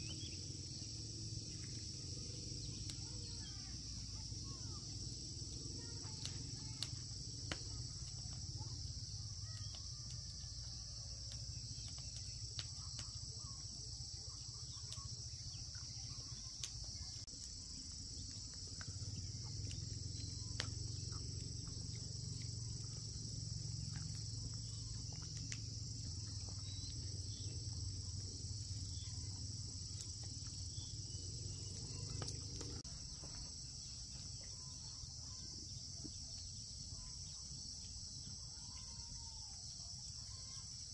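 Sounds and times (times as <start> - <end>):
insects chorus: 0.0 - 40.9.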